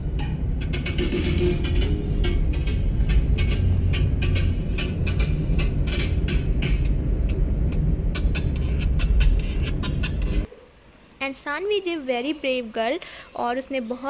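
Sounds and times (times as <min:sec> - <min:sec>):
car cabin road rumble: 0:00.0 - 0:10.5.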